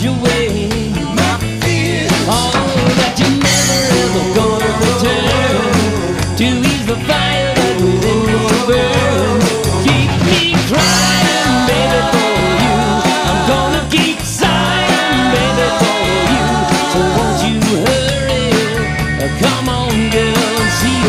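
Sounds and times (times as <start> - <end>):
bass guitar: 0.0 - 21.0
drum kit: 0.0 - 21.0
electric guitars: 0.0 - 21.0
person singing: 0.0 - 21.0.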